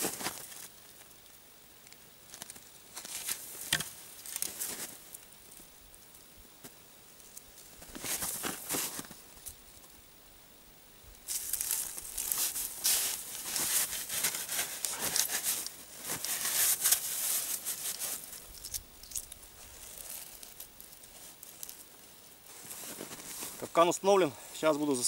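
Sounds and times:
crunching and scraping in snow: 0.0 - 0.7, 2.3 - 5.1, 7.6 - 9.2, 11.3 - 21.9, 22.5 - 25.0.

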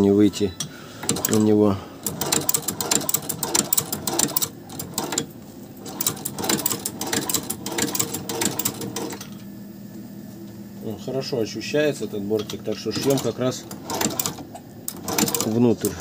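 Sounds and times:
sewing machine stitching: 1.0 - 9.3, 12.8 - 16.0.

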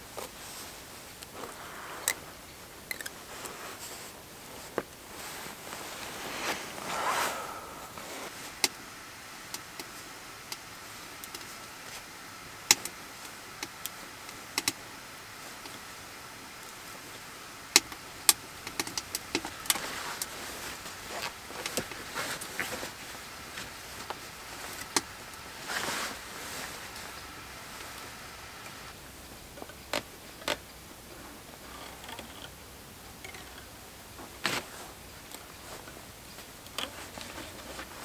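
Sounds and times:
fabric rustling: 3.0 - 8.6, 19.8 - 29.0
sharp clicks and small taps: 14.6 - 14.8.

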